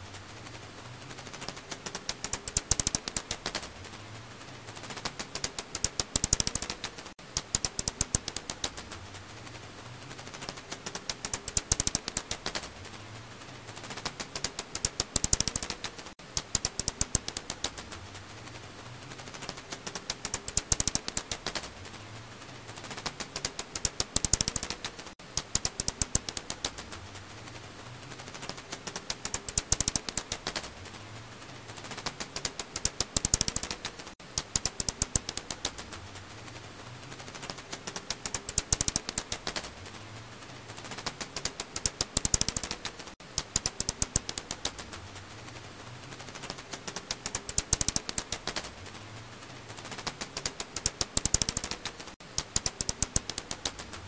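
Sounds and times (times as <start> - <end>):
bat echolocation clicks: 1.4 - 3.7, 4.9 - 8.9, 10.3 - 12.7, 13.9 - 18.0, 19.3 - 21.7, 22.8 - 27.0, 28.4 - 30.7, 31.8 - 36.0, 37.3 - 39.7, 40.9 - 45.0, 46.3 - 48.7, 49.8 - 54.0.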